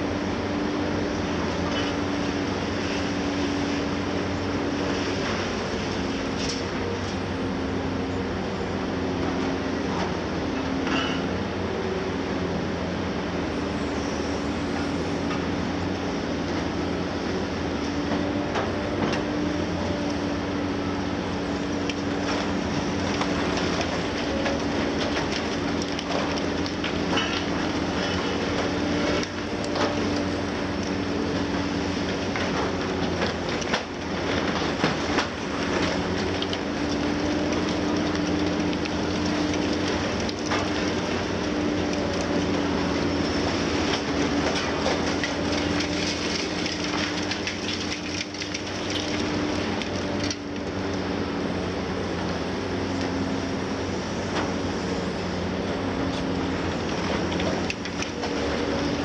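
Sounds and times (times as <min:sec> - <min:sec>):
diesel engine and hydraulics humming: 0:00.0 - 0:59.0
concrete crunching and debris falling: 0:33.3 - 0:50.6.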